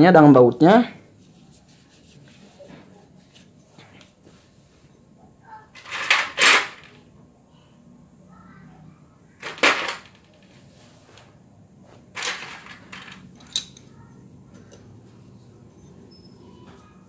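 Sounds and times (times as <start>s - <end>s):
metal parts clattering: 5.7s - 7.0s, 9.4s - 10.6s, 12.1s - 13.9s.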